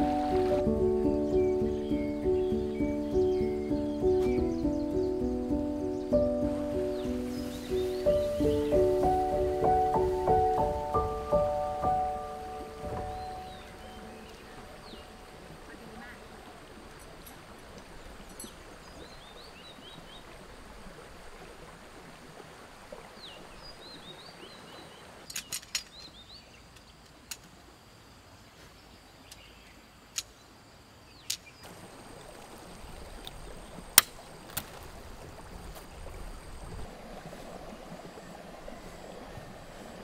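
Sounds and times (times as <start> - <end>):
small birds chirping: 0.0 - 20.4
stream flowing: 0.0 - 40.0.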